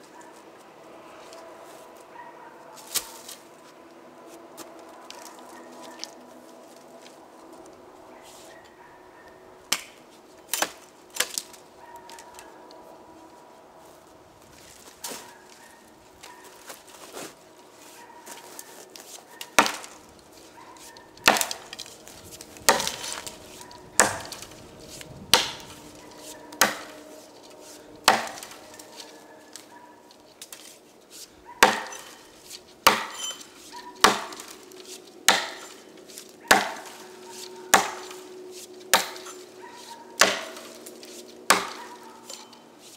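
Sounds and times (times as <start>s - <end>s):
axe chopping wood: 9.7s - 11.5s, 19.4s - 20.0s, 21.2s - 24.5s, 25.3s - 27.0s, 28.0s - 29.1s, 31.6s - 35.8s, 36.5s - 37.0s, 37.7s - 38.2s, 38.9s - 39.4s, 40.2s - 40.9s, 41.5s - 42.4s.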